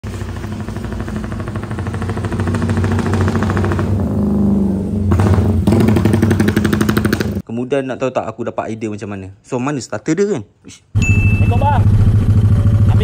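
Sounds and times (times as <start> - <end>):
motorcycle engine with choppy exhaust: 0.0 - 7.4, 11.0 - 13.0.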